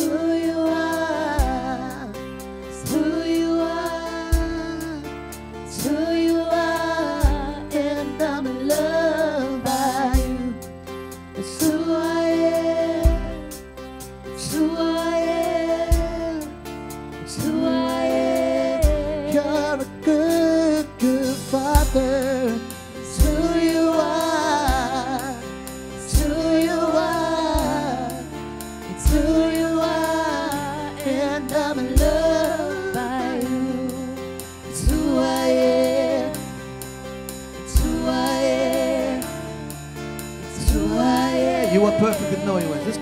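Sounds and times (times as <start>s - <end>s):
keyboard: 0.0s - 43.0s
person singing with vibrato: 17.2s - 36.6s, 37.7s - 43.0s.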